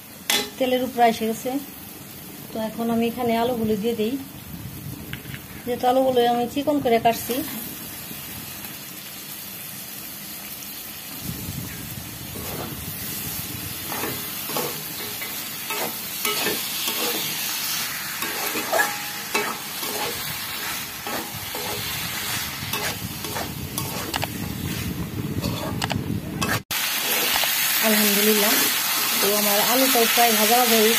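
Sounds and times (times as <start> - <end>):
potatoes sizzling in oil: 0.0 - 25.6, 26.4 - 30.9
metal spoon scraping pan: 13.9 - 17.4, 18.2 - 24.3, 25.4 - 27.2.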